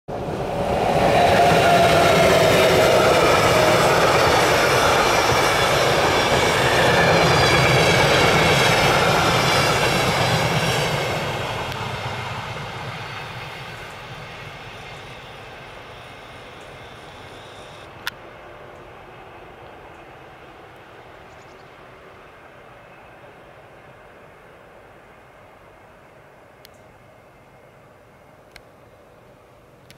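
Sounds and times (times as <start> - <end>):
train carriages rumbling on rails: 0.1 - 20.7.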